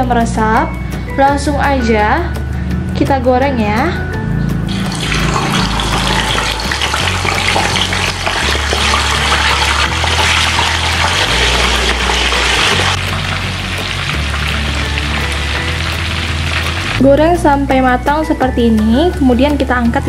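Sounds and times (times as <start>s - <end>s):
background music with bass line: 0.0s - 20.0s
fish sizzling in hot oil: 4.7s - 17.0s.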